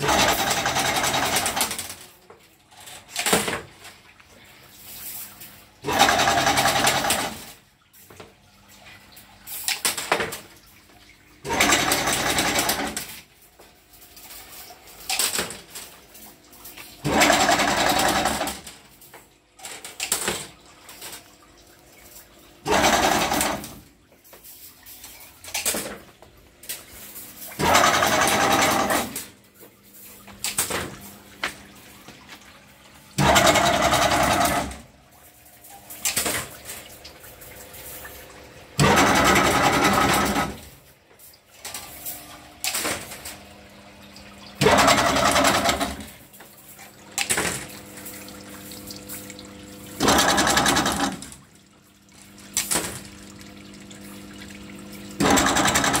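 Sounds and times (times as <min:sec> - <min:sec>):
fencing machine mechanical bursts: 0:05.8 - 0:07.5, 0:22.6 - 0:23.8, 0:33.2 - 0:34.8.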